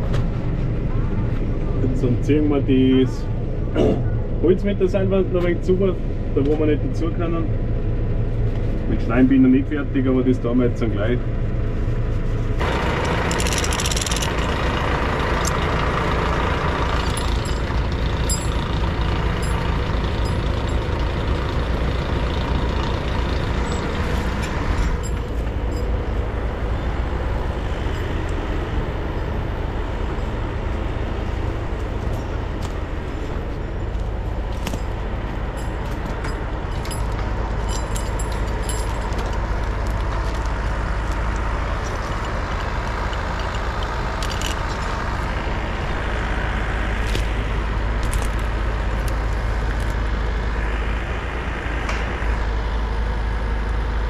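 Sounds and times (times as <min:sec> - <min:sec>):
tractor engine under load: 0:00.0 - 0:54.0
winch pulling logs: 0:12.6 - 0:50.0.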